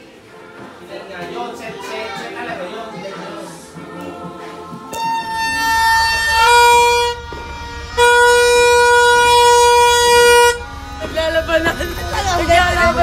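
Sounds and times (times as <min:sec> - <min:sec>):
toy horn buzzy blasts: 0:04.9 - 0:11.1.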